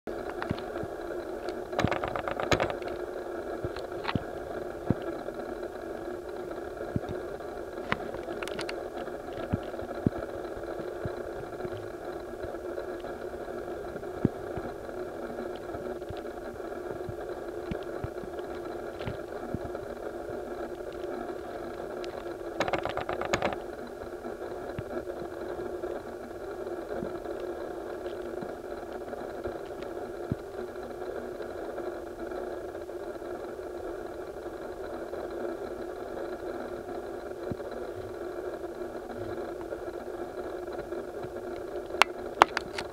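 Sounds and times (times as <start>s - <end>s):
faint clicks: 0.1s - 5.3s, 6.9s - 13.2s, 17.0s - 23.9s, 40.7s - 42.9s
steady mechanical hum: 0.1s - 42.9s.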